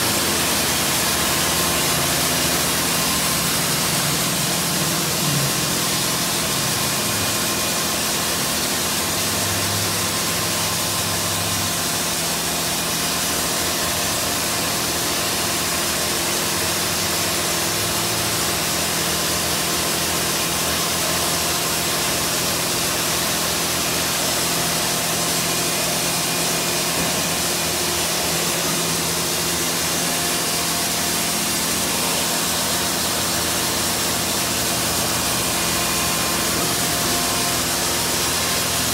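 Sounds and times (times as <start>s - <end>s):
pump motors humming: 0.0s - 38.9s.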